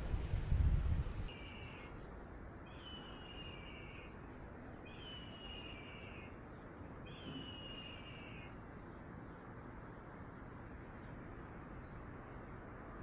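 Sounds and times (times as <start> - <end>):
bird whistling call: 2.7 - 4.1, 4.9 - 6.3, 7.1 - 8.5.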